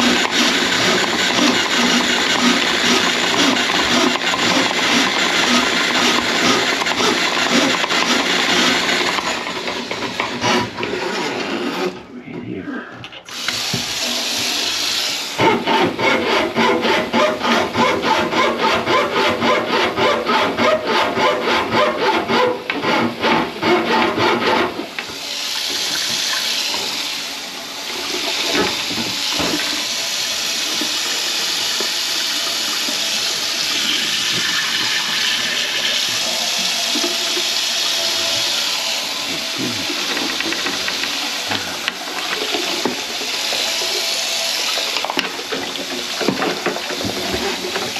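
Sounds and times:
faucet running into sink: 0:25.1 - 0:27.2, 0:27.8 - 0:47.9.

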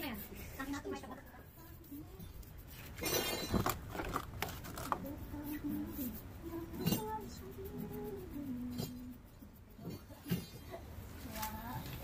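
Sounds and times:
brush scrubbing steel bar: 0:00.0 - 0:03.8, 0:04.8 - 0:10.8.

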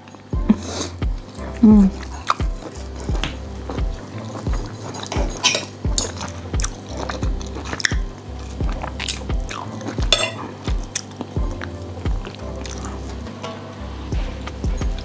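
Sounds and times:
cutlery scraping on a plate: 0:04.8 - 0:06.3, 0:10.1 - 0:10.6.

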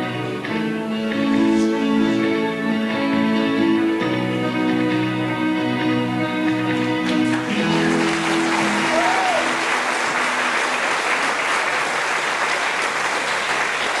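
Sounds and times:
audience applauding: 0:06.9 - 0:14.0.

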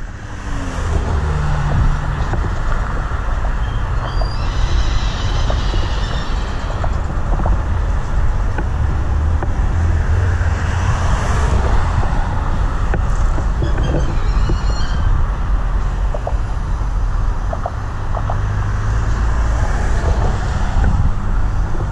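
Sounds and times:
freight cars rumbling on rails: 0:00.0 - 0:21.9
high squeals: 0:03.5 - 0:07.3, 0:13.6 - 0:15.4.

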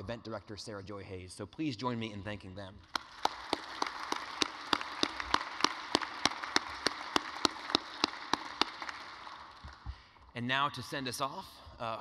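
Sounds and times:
close hand claps: 0:02.8 - 0:10.3
audience applauding: 0:02.9 - 0:10.2.

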